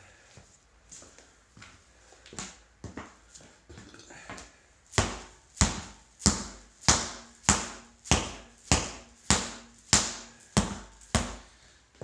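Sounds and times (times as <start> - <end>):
hammer thudding on tire: 5.0 - 11.5.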